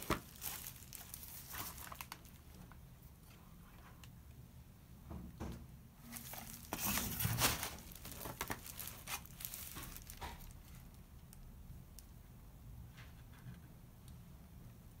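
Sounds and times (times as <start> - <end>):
plastic packaging crinkling: 0.0 - 2.8, 6.0 - 11.5.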